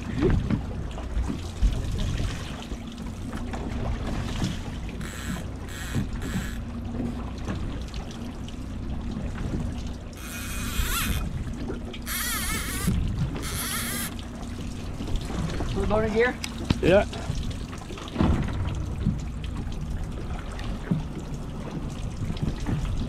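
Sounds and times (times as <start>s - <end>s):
outboard motors humming: 0.0s - 22.3s
water washing along hull: 0.0s - 23.0s
high-pitched rasping bursts: 4.9s - 6.6s, 10.2s - 11.3s, 12.0s - 14.2s.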